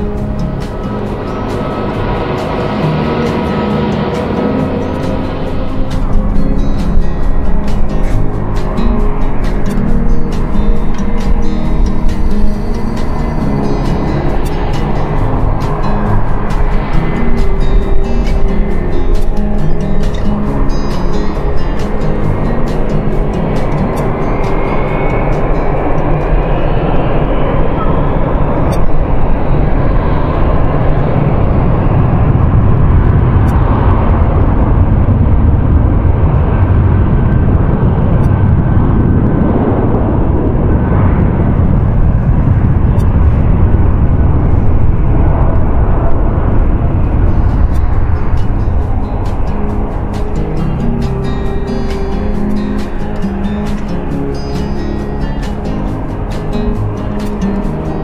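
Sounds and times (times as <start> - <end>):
background music: 0.0 - 41.4, 44.8 - 58.0
faint high whine: 0.0 - 58.0
jet engine roar: 0.0 - 58.0.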